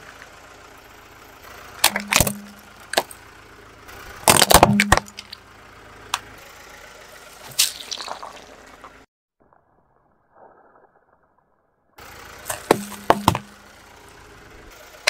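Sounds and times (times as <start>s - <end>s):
tyre crushing objects on concrete: 1.8s - 3.1s, 4.3s - 5.4s, 12.5s - 13.6s
wet crackling squish: 7.4s - 11.7s.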